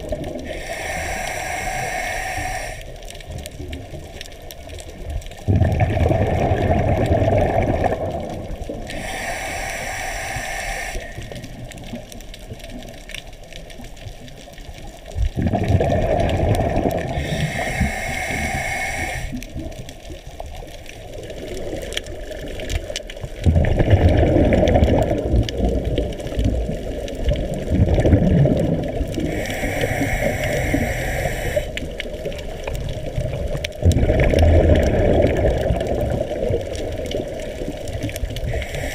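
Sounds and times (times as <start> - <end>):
regulator inhalation hiss: 0.4 - 3.0, 8.9 - 11.6, 17.1 - 19.4, 29.2 - 31.9, 38.4 - 38.9
exhaust bubbles rushing: 5.5 - 8.6, 15.4 - 17.2, 23.4 - 25.8, 27.6 - 29.1, 33.8 - 36.7.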